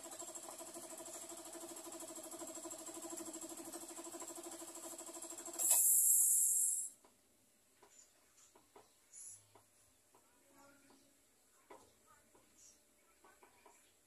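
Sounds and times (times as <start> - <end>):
air compressor humming: 0.0 - 7.0
loud hiss of released air: 5.6 - 6.9.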